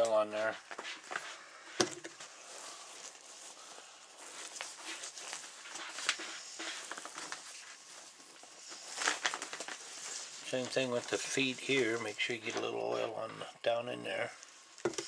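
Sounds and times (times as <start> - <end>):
plastic sheet clicks and crinkles: 4.2 - 11.8, 14.8 - 15.0.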